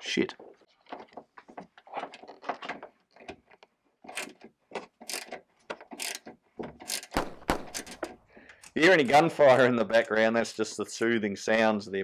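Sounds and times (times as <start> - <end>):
socket ratchet clicking: 5.0 - 5.4, 6.0 - 6.2, 6.8 - 8.8.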